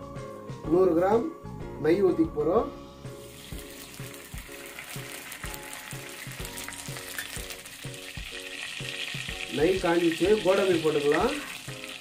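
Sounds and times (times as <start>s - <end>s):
ghee sizzling and bubbling: 3.0s - 12.0s.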